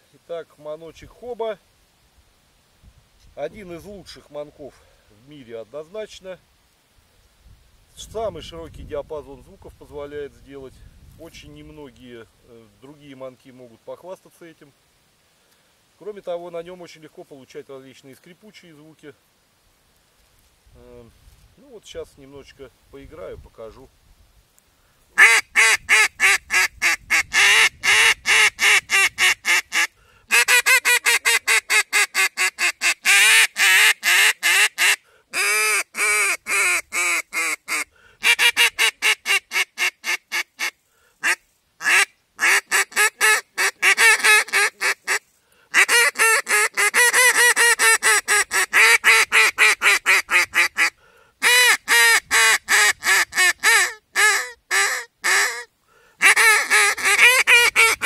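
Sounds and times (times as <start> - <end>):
duck call quacks: 25.2 - 58.0.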